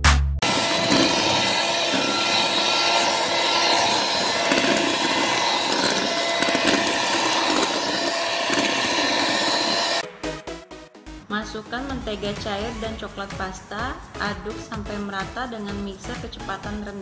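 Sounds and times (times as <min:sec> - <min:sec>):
electric hand mixer running: 0:00.4 - 0:10.0.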